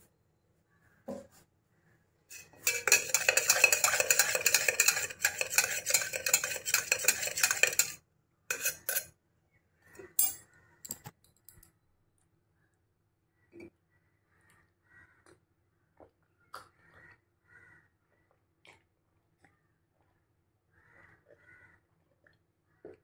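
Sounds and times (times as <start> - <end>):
kitchenware clattering: 2.3 - 9.1
utensil stirring against a dish: 2.3 - 9.1.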